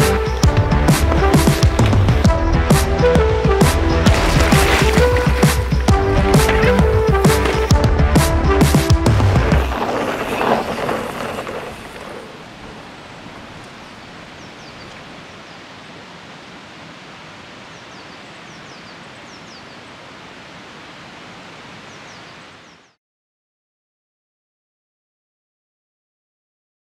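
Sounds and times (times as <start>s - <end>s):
music: 0.0s - 9.8s
outdoor rushing ambience: 0.0s - 14.4s
high falling bird chirps: 12.4s - 16.6s, 17.5s - 20.1s, 21.7s - 23.0s.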